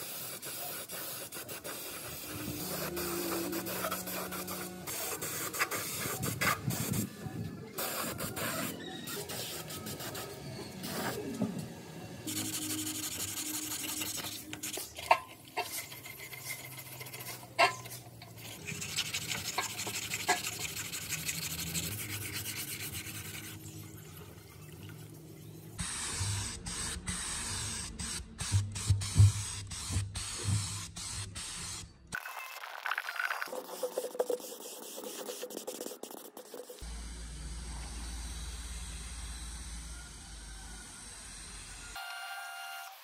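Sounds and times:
sandpaper rubbing on metal: 0:00.0 - 0:07.2, 0:07.8 - 0:11.2, 0:12.3 - 0:23.7, 0:33.6 - 0:36.9.

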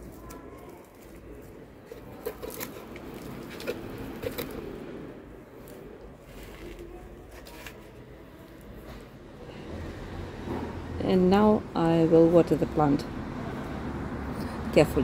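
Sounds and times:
potting mix rustling and crunching: 0:00.0 - 0:09.2.

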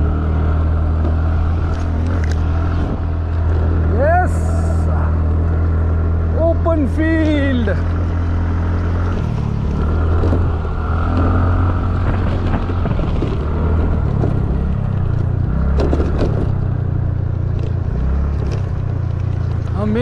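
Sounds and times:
wind noise: 0:01.0 - 0:05.3, 0:09.1 - 0:16.8
motor scooter engine revving: 0:07.9 - 0:16.7
scooter clattering over bumps: 0:09.1 - 0:20.0.

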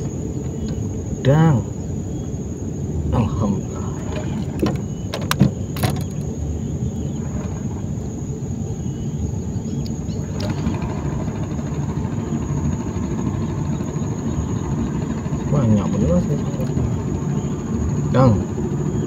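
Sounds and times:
low motor rumble: 0:00.0 - 0:19.0
sharp clicks and knocks: 0:04.1 - 0:06.3.

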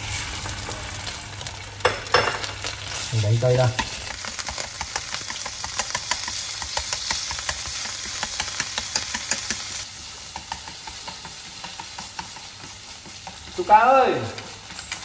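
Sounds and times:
meat sizzling in a frying pan: 0:00.0 - 0:15.0
chopsticks clicking against pan: 0:04.8 - 0:09.7, 0:10.3 - 0:13.6.

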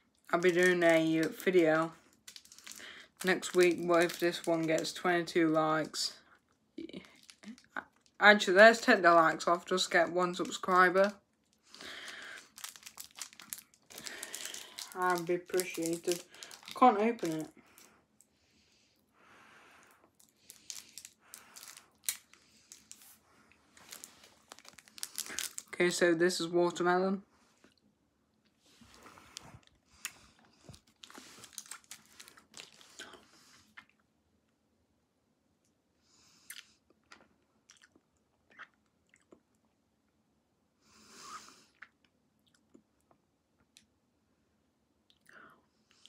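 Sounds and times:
plastic wrapper crinkling and tearing: 0:00.2 - 0:06.2, 0:06.8 - 0:17.9, 0:19.8 - 0:26.0, 0:28.8 - 0:33.8
candy sucking and chewing: 0:02.1 - 0:04.9, 0:06.8 - 0:08.2, 0:10.5 - 0:18.4, 0:19.7 - 0:25.8, 0:28.7 - 0:34.0, 0:36.4 - 0:39.6.

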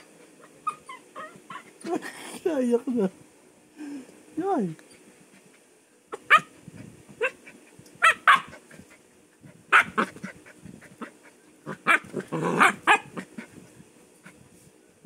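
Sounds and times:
dog play barks: 0:06.1 - 0:06.6, 0:08.0 - 0:08.7, 0:09.7 - 0:10.3, 0:11.0 - 0:13.4
dog growling: 0:11.0 - 0:13.4.

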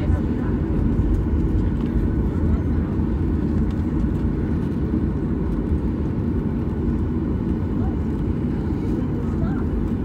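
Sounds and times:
airplane cabin engine rumble: 0:00.0 - 0:10.0.

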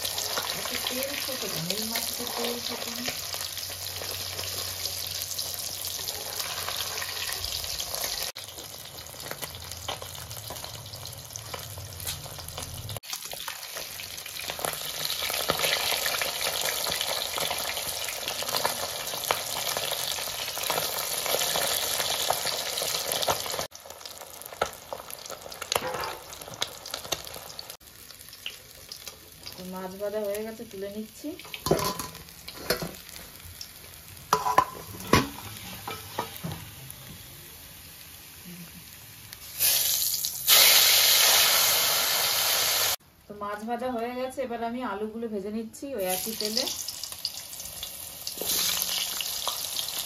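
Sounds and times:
fish sizzling in hot oil: 0:00.0 - 0:43.0, 0:46.0 - 0:50.0
metal spatula scraping pan: 0:34.3 - 0:36.5.

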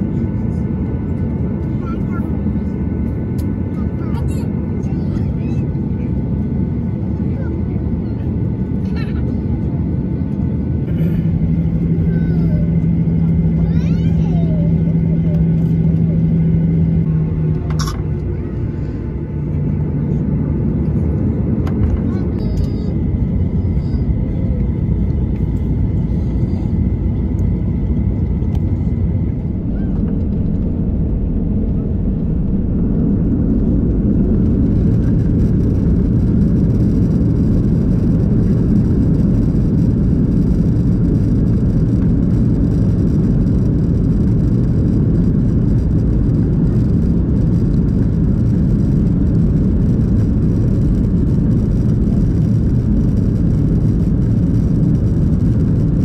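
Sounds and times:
jet engine rumble in cabin: 0:00.0 - 0:56.0.

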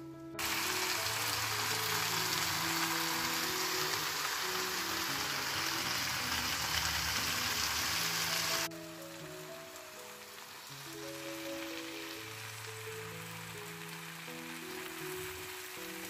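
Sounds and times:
melodic background music: 0:00.0 - 0:16.0
vegetables sizzling in a pan: 0:00.4 - 0:16.0.

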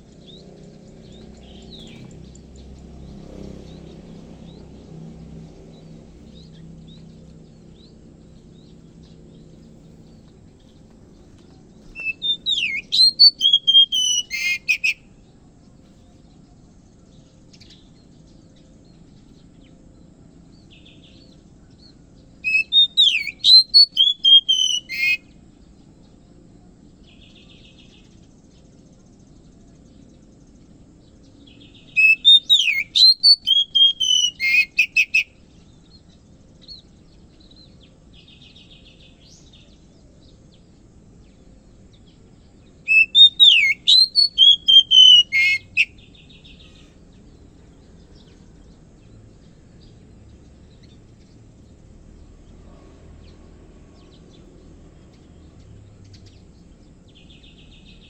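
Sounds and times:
bird singing whistled phrases: 0:11.9 - 0:15.1, 0:22.4 - 0:25.3, 0:31.6 - 0:35.4, 0:42.8 - 0:46.8.

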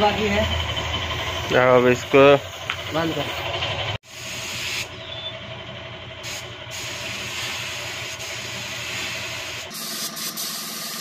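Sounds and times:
air compressor humming: 0:00.0 - 0:11.0
spray gun hissing: 0:04.0 - 0:04.9, 0:06.2 - 0:11.0.

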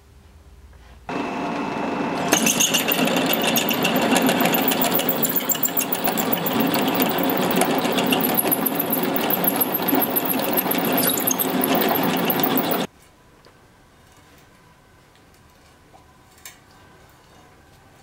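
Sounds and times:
drill cutting steel crackle: 0:01.1 - 0:12.9
drill press motor running: 0:01.1 - 0:12.9.

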